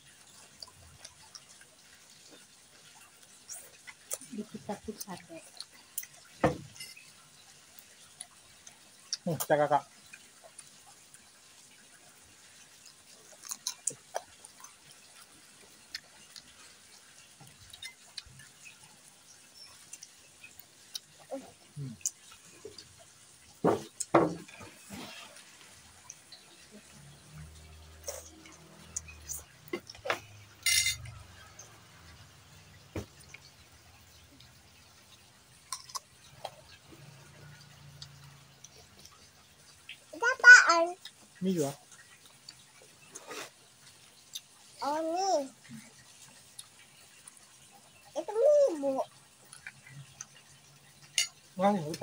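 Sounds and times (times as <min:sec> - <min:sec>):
noodles being slurped and chewed: 0:41.1 - 0:44.7.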